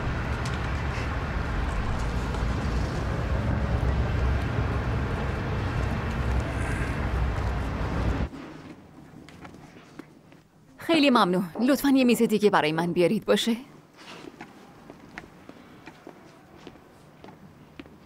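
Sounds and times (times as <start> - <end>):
traffic rumble: 0.0 - 9.6.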